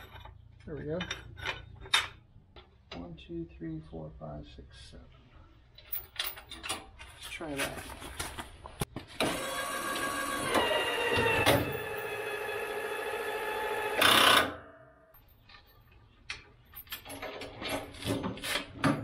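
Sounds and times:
power-lift motor whining: 9.2 - 14.2.

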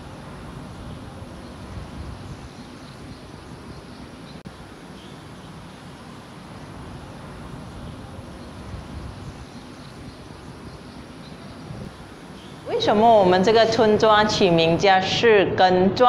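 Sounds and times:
low rumbling noise: 0.0 - 14.9.

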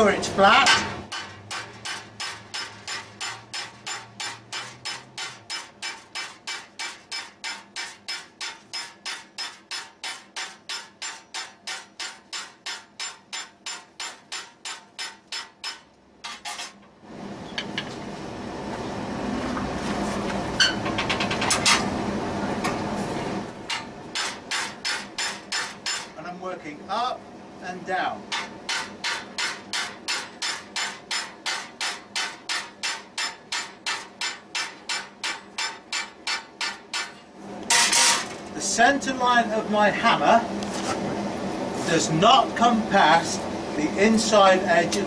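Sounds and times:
hammer striking hot steel: 0.6 - 16.8, 23.7 - 26.2, 28.3 - 38.4.

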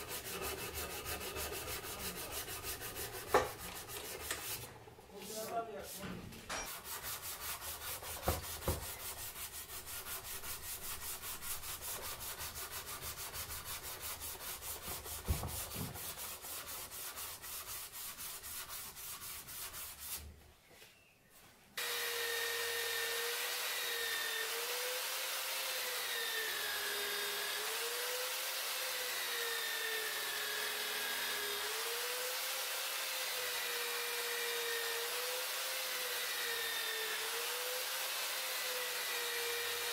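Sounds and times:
hand sanding wood: 0.0 - 20.4, 21.8 - 39.9
bench grinder whining: 21.8 - 39.9.

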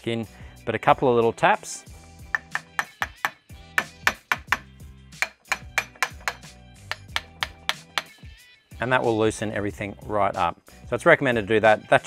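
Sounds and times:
hammer tapping on metal: 2.3 - 8.2.

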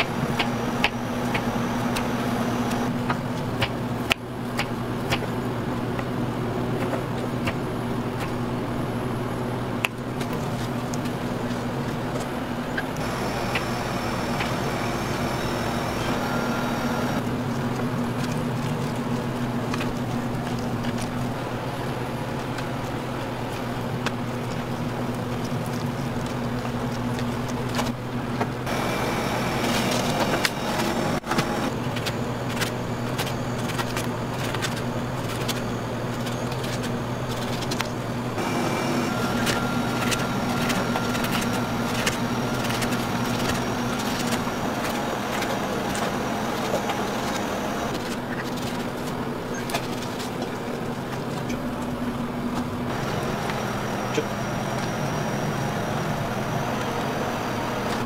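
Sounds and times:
low mechanical hum: 0.0 - 58.0
faint thin whine: 13.0 - 17.2.

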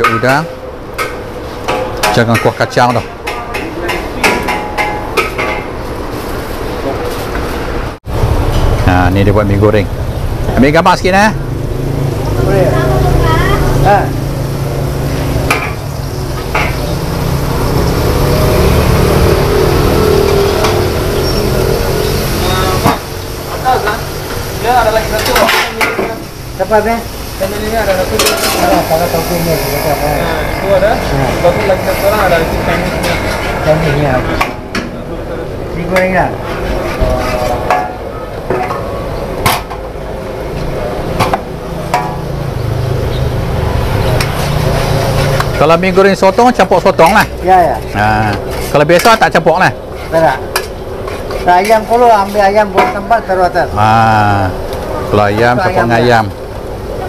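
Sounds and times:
noodles sizzling in a wok: 19.1 - 33.8.

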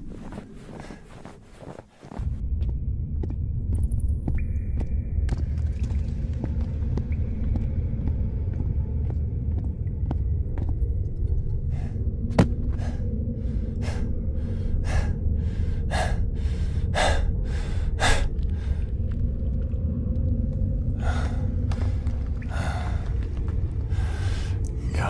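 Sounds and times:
low rumble: 2.1 - 25.0
person panting: 12.7 - 18.9.

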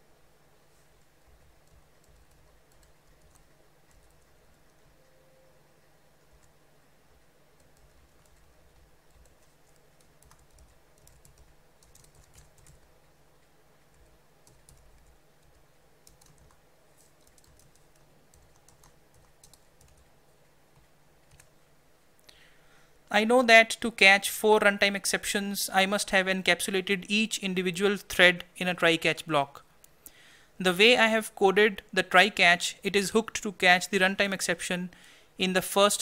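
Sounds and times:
typing on keyboard: 1.0 - 5.2, 7.6 - 12.9, 13.9 - 20.1, 20.7 - 21.5.

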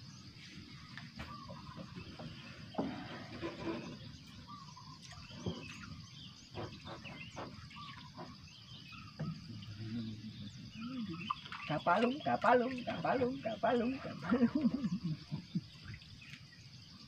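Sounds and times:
birds chirping: 0.0 - 17.0
insect drone: 0.0 - 17.0.

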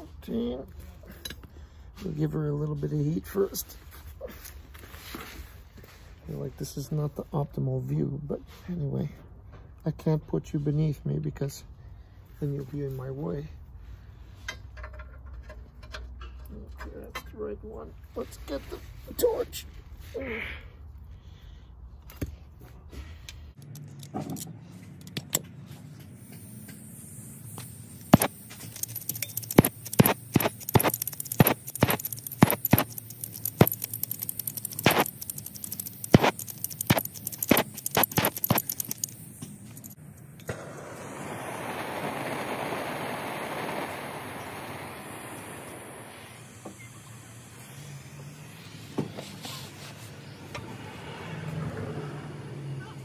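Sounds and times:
faint gas hissing: 25.8 - 50.6
torch flame hissing: 26.1 - 50.4
flint spark striker clicking: 27.6 - 40.6.

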